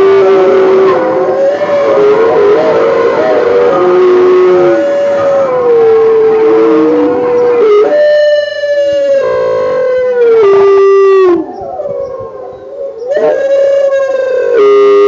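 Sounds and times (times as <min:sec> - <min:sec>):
wolf-like howls over loudspeakers: 0:00.0 - 0:15.0.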